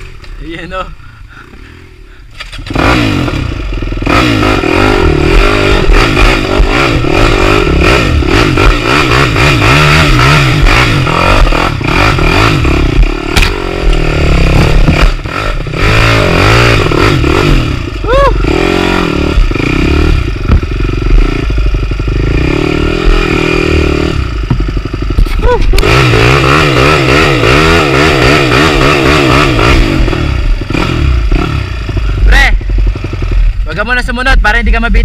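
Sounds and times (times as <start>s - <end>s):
dirt bike engine revving: 0.0s - 35.0s
bike knocking and clattering: 20.4s - 21.9s, 24.4s - 25.4s.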